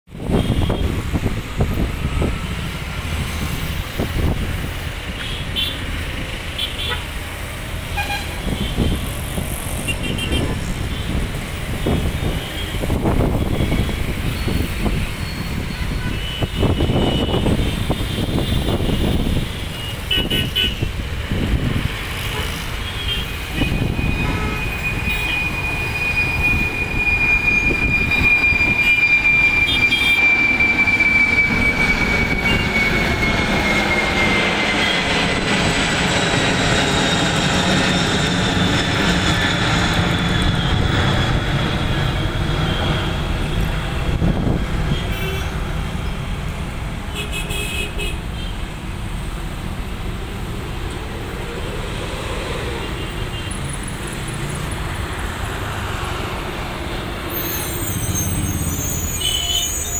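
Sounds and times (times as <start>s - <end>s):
jet engines roaring: 0.1s - 47.4s, 48.0s - 59.9s.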